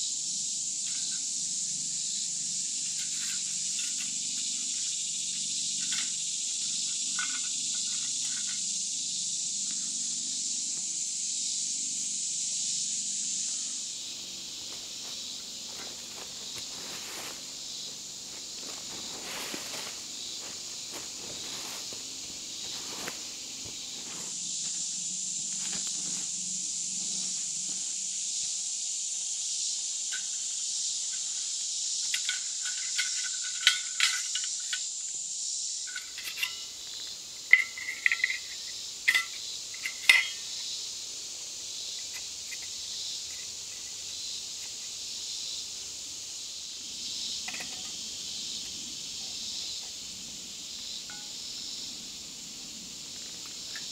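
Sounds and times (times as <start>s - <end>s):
high insect chorus: 0.0s - 53.9s
footsteps on leaf litter: 14.6s - 24.4s
metal cook kit clinking: 35.9s - 36.7s, 39.1s - 40.4s.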